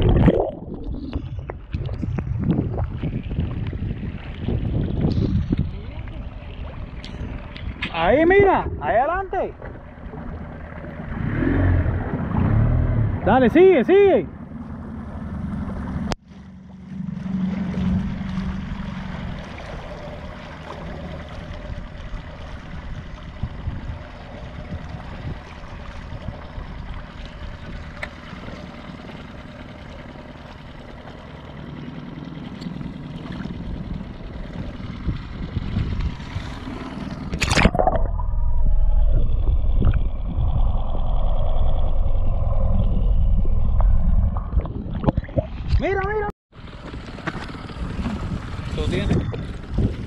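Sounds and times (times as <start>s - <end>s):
water lapping against dinghy: 0.0s - 13.3s, 14.5s - 38.1s, 39.2s - 50.0s
muffled underwater rumble: 0.0s - 13.4s, 14.3s - 50.0s
sharp splash: 35.7s - 38.6s.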